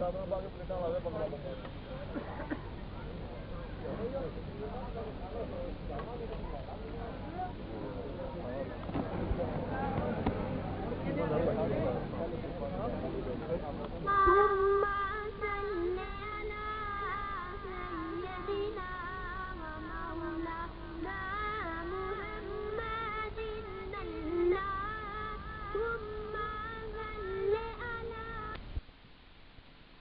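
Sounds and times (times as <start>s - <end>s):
boy singing: 14.0s - 28.6s.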